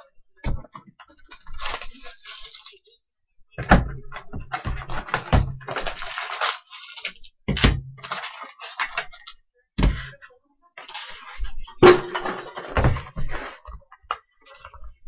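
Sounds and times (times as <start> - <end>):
plastic wrappers crinkling and tearing: 1.0 - 3.0, 4.9 - 7.4, 8.0 - 9.4, 10.8 - 11.5
heavy thumps: 11.8 - 13.3.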